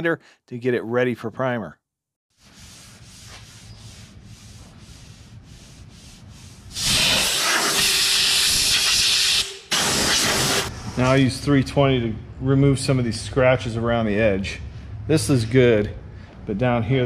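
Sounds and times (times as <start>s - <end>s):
sandpaper rubbing back and forth: 2.3s - 7.6s
compressed air blow gun hissing: 6.6s - 10.7s.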